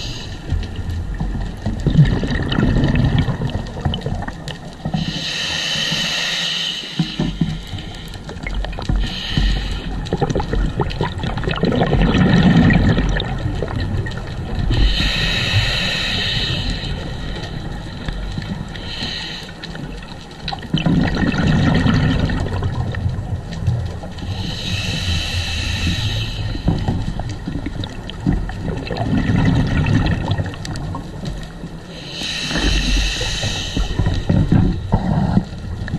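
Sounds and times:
bubbling exhalations: 1.6 - 5.2, 8.3 - 15.9, 19.8 - 23.3, 24.2 - 31.0, 32.2 - 35.9
diver breathing through regulator: 4.8 - 10.2, 14.6 - 19.9, 24.2 - 27.4, 31.9 - 35.7.

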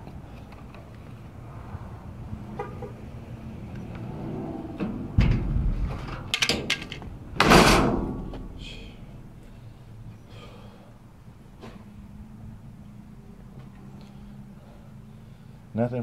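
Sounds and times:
thump: 5.2 - 6.1
dumpster lid loud bang: 7.4 - 8.6.

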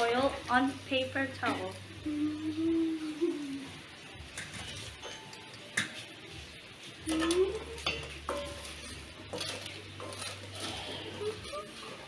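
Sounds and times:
faint oil sizzle: 0.0 - 12.0
metal utensils clinking on wok: 4.3 - 6.1, 7.0 - 12.0.

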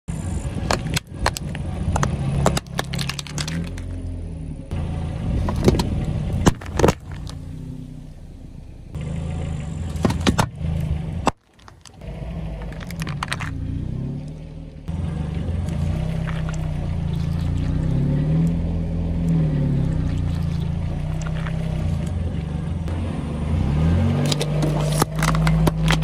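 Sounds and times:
car engine hum: 0.1 - 26.0
tyre crushing plastic and can: 0.6 - 4.0, 5.4 - 7.4, 11.2 - 12.0, 12.6 - 13.6, 24.2 - 26.0.

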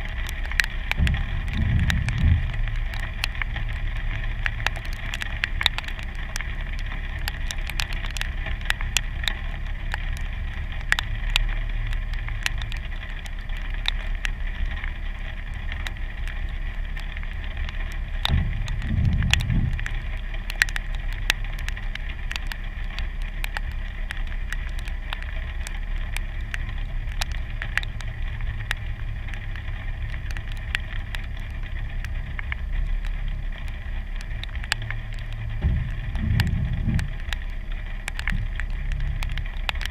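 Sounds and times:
car engine idling: 0.0 - 7.2, 26.0 - 39.7
raindrops ticking on car hood: 0.0 - 39.9.

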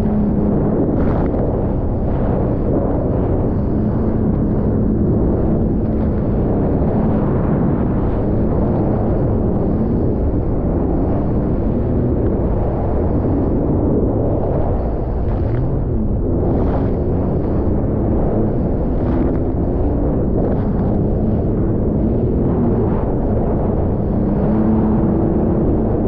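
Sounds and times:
watercraft engine drone: 0.0 - 26.0
wind buffeting microphone: 0.0 - 26.0.

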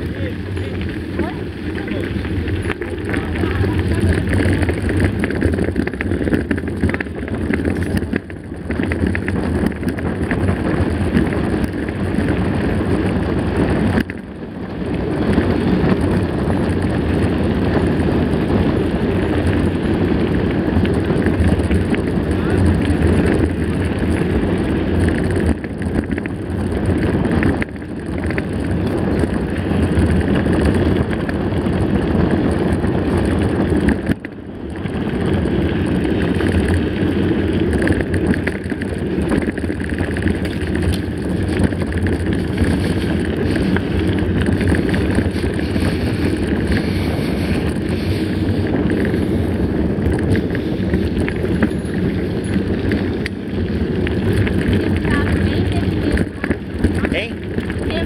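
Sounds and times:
bike tyres on gravel: 0.0 - 58.0
wind on microphone: 0.0 - 58.0.

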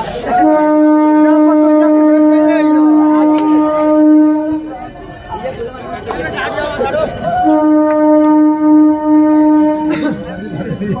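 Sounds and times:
long steady horn note: 0.3 - 4.9, 7.4 - 10.3.

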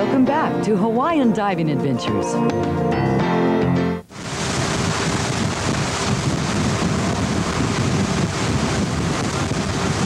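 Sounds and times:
water rushing past boat: 4.1 - 10.0
wind buffeting microphone: 4.1 - 10.0.

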